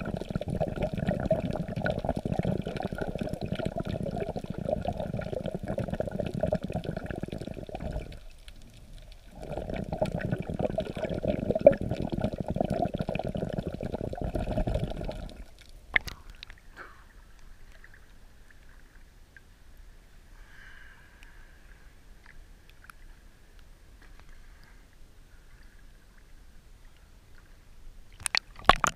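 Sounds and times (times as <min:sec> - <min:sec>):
underwater churning noise: 0:00.0 - 0:16.6, 0:28.2 - 0:28.9
water splashing clicks: 0:15.5 - 0:16.6, 0:28.2 - 0:28.9.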